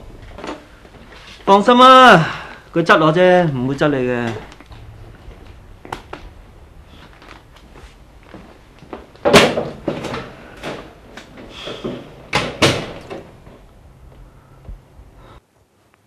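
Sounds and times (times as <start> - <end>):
door banging: 9.2 - 11.0, 11.7 - 13.6
door opening and shutting: 9.2 - 13.6.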